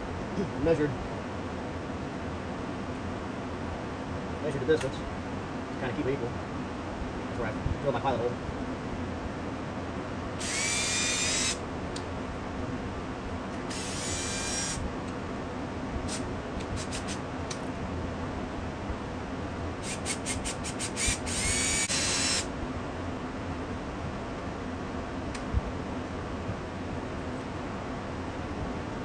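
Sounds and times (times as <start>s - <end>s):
cordless drill whining: 10.4s - 11.6s, 13.7s - 14.8s, 19.8s - 22.5s.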